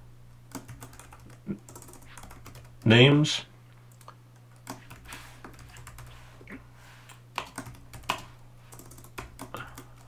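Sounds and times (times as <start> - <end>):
keyboard typing clicks: 0.5 - 2.8, 3.9 - 6.1, 7.4 - 10.0.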